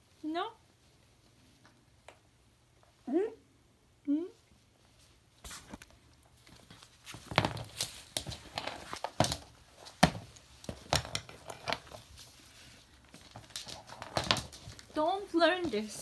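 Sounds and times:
fabric rustling: 4.6s - 16.0s.

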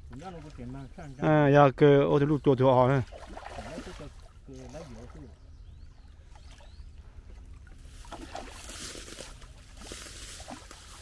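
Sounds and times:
fish splashing in water: 3.0s - 5.2s, 7.6s - 11.0s.

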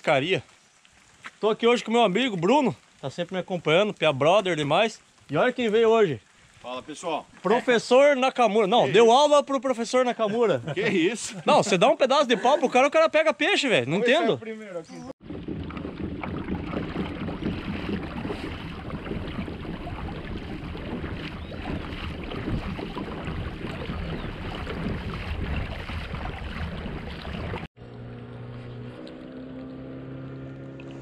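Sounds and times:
water noise: 0.0s - 12.6s, 13.6s - 31.0s
wind rumble on microphone: 15.2s - 27.7s.

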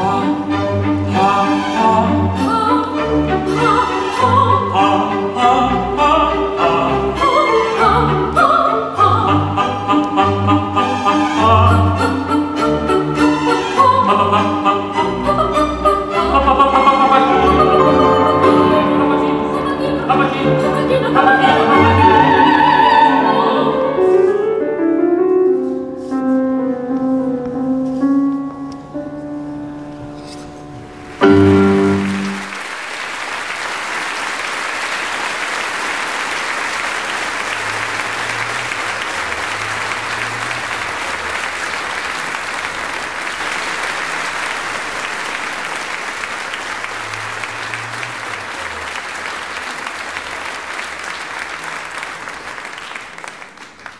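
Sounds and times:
operatic choir with piano: 0.0s - 26.2s, 29.4s - 32.6s
audience applause: 31.0s - 53.9s.

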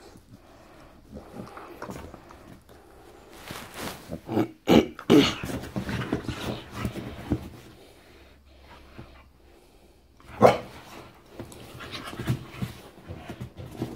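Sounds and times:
rustling and scuffling on sofa: 0.0s - 4.4s, 5.1s - 9.3s, 10.2s - 13.9s
dog barking: 10.4s - 10.7s.

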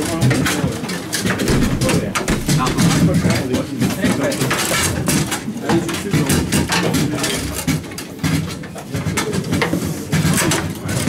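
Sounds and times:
foosball rods rattling: 0.0s - 11.0s
foosball ball knocking: 1.3s - 3.4s.

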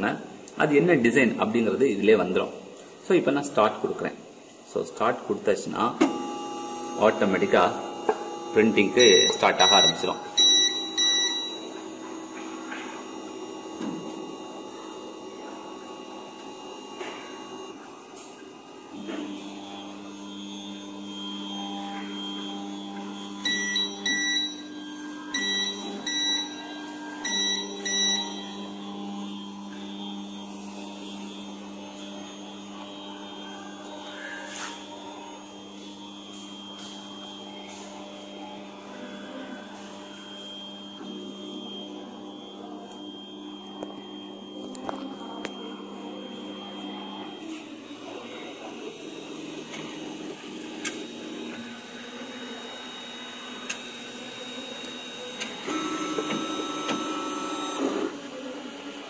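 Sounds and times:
three-d printer motors humming: 0.2s - 59.0s
short high electronic beeps: 8.9s - 11.7s.

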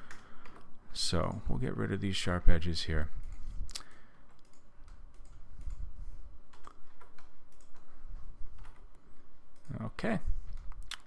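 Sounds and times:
faint low hum: 0.0s - 11.0s
computer mouse clicking: 3.2s - 5.9s, 6.5s - 7.9s, 8.6s - 9.8s.

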